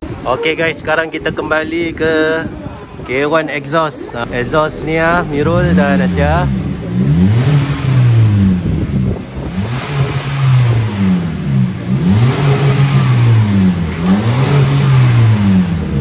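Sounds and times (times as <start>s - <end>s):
car engine revving: 4.0s - 16.0s.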